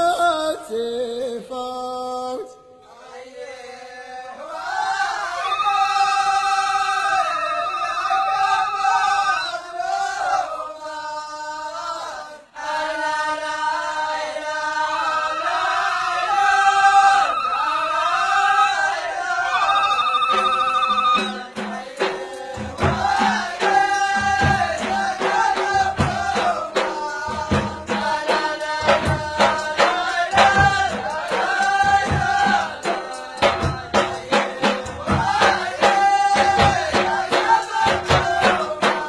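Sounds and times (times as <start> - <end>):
men chanting: 0.0 - 39.0
drums beating: 19.2 - 39.0.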